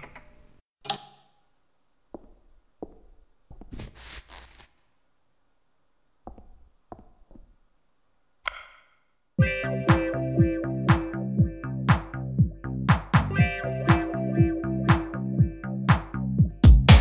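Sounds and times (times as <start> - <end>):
footsteps: 2.1 - 4.9, 6.2 - 7.6
music with steady beat: 9.4 - 17.0.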